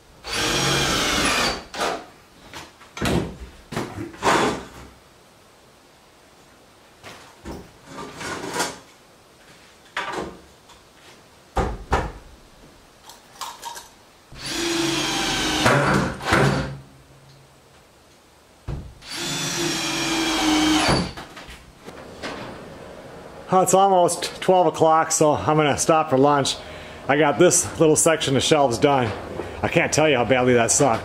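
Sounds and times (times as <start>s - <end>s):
power drill driving screws into wood: 0.2s - 2.0s, 14.4s - 16.8s, 19.0s - 21.2s.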